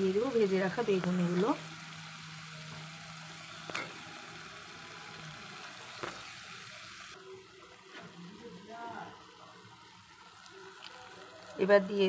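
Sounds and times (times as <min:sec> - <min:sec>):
paste sizzling in hot oil: 0:00.0 - 0:12.0.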